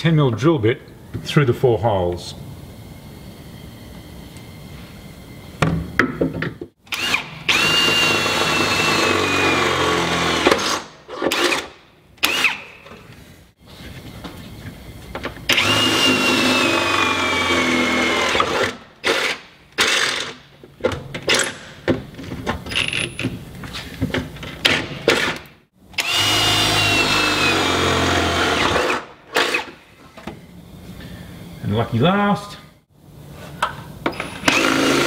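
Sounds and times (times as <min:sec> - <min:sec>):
cordless drill boring through metal: 0:06.9 - 0:11.6, 0:15.5 - 0:20.2, 0:26.0 - 0:29.7, 0:34.2 - 0:35.0.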